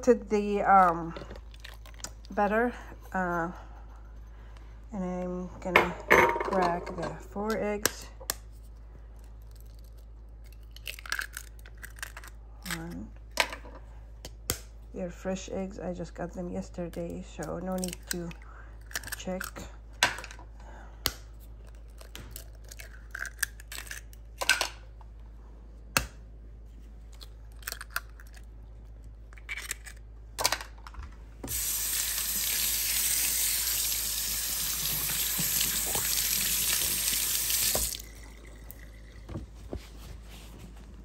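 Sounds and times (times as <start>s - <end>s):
eggs cracking and shells clicking: 9.4s - 12.9s, 21.0s - 24.7s, 27.2s - 28.5s, 29.3s - 30.8s
kitchen faucet running: 31.5s - 39.3s.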